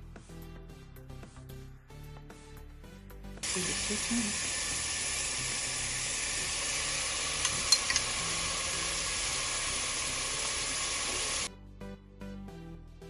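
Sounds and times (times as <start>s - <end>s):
chicken frying in oil: 3.4s - 11.5s
sharp clicks: 7.4s - 8.2s.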